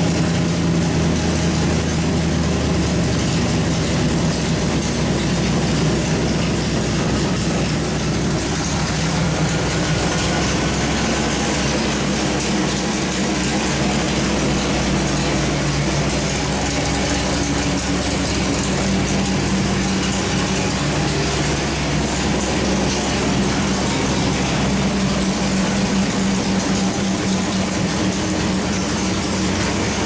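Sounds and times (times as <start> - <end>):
vee eight engine running steadily: 0.0 - 30.0.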